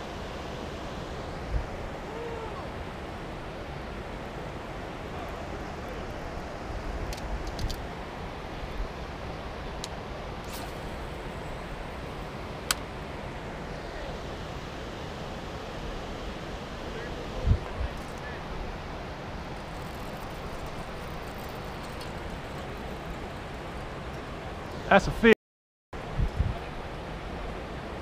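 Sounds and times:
wind on microphone: 0:26.0 - 0:26.8.

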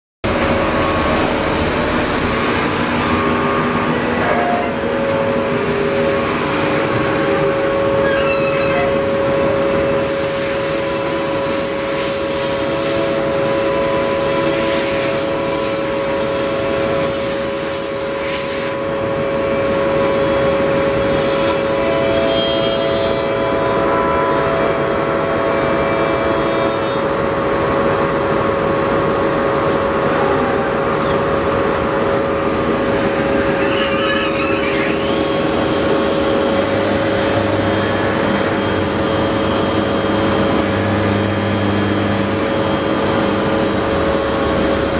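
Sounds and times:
high whine: 0:00.2 - 0:17.2, 0:18.8 - 0:44.9
machine whine: 0:00.2 - 0:44.9.

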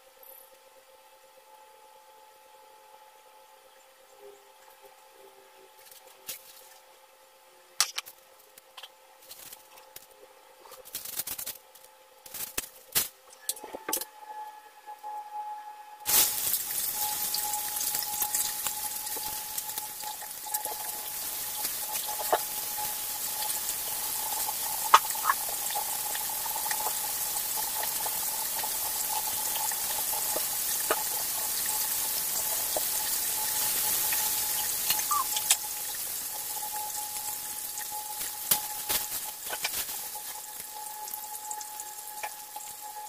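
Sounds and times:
fish sizzling in hot oil: 0:16.1 - 0:43.0
oil pops and crackles: 0:24.4 - 0:28.7, 0:34.8 - 0:35.7, 0:37.8 - 0:40.7.

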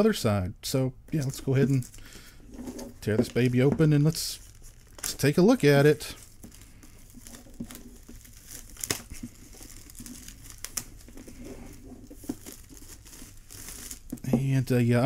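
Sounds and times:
plastic shrink wrap crinkling: 0:01.1 - 0:15.0.

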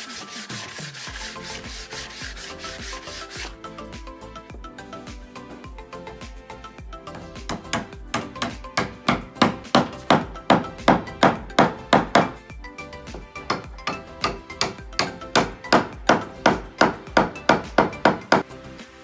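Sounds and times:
background music: 0:00.0 - 0:19.0
hammer striking wood: 0:07.1 - 0:12.4, 0:13.1 - 0:18.5.

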